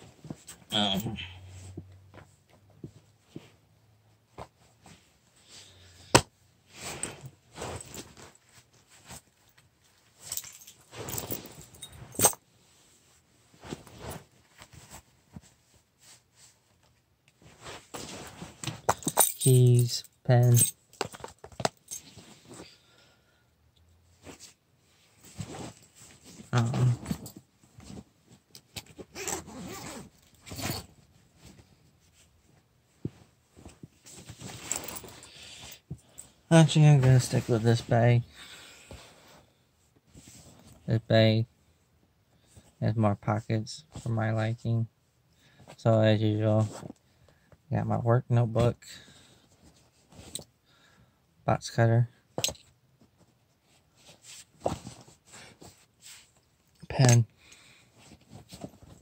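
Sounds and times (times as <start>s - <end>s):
rustling of small items: 6.7s - 12.8s, 13.5s - 22.8s, 24.1s - 39.4s, 52.4s - 57.2s, 57.8s - 59.0s
fabric rustling: 12.9s - 19.0s, 24.2s - 36.4s
keys jingling: 18.9s - 20.8s
zipper pulled: 29.0s - 30.9s.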